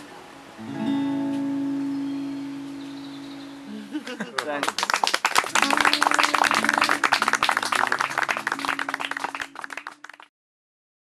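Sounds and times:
acoustic guitar: 0.0s - 4.2s, 5.5s - 10.2s
rapid clapping: 4.4s - 10.3s.

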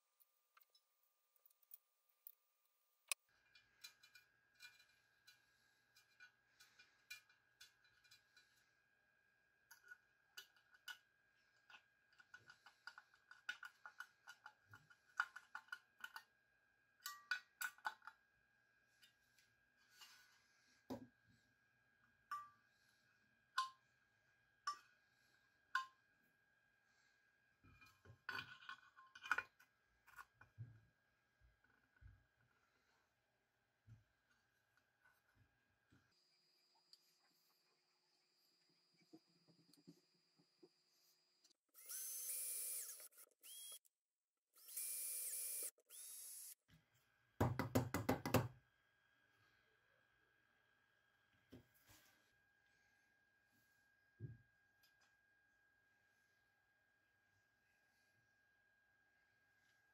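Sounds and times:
power tool motor whining: 41.7s - 43.8s, 44.6s - 46.6s.

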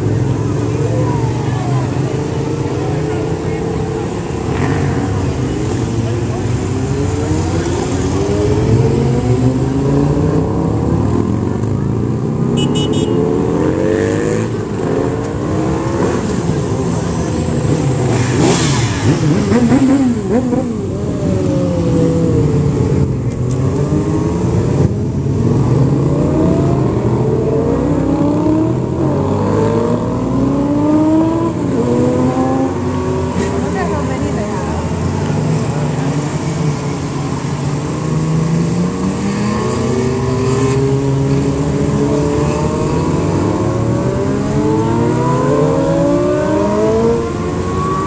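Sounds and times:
motorbikes passing by: 0.0s - 48.0s
motorbike engine revving: 12.8s - 23.0s.

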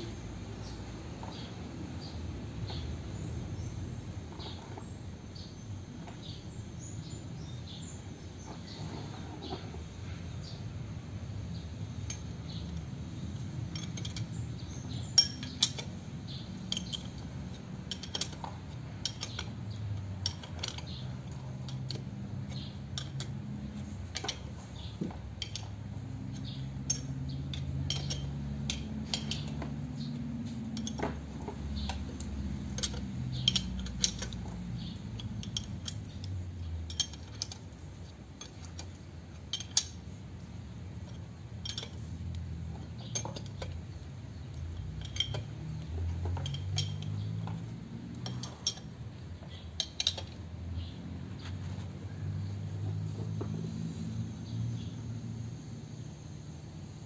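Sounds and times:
spanner clicking against bolts: 11.5s - 55.3s.

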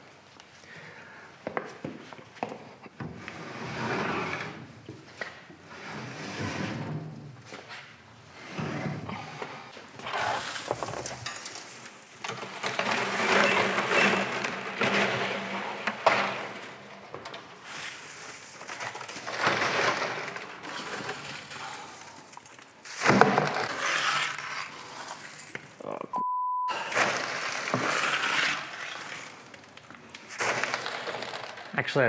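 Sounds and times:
metal chips rustling and clinking: 10.2s - 25.8s, 26.9s - 32.0s.

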